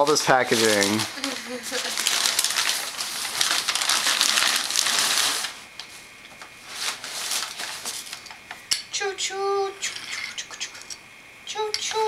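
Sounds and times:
paper crumpling and rustling: 0.0 - 6.0, 6.6 - 8.3.

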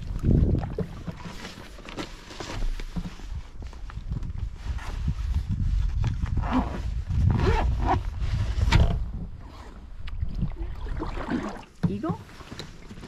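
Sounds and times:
wind rumble on microphone: 0.0 - 1.3, 3.0 - 11.3
water slapping hull: 0.0 - 1.8, 9.9 - 13.0.

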